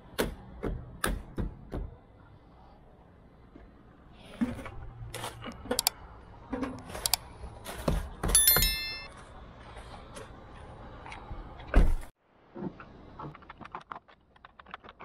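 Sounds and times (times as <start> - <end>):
metallic notification bell chime: 8.4 - 9.2.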